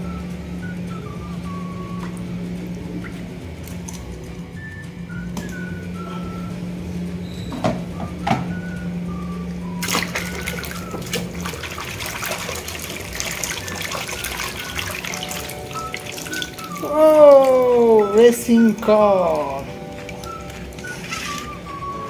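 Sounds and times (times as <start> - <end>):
water sloshing in plastic basin: 9.8 - 22.0.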